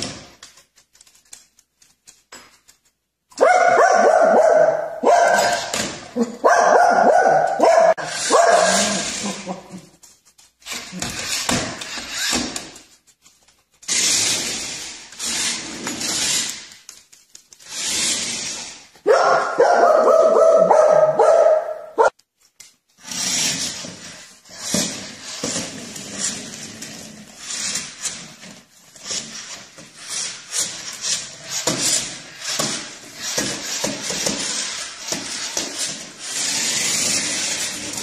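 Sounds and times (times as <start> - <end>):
dog barking: 3.4 - 9.1, 19.0 - 22.1.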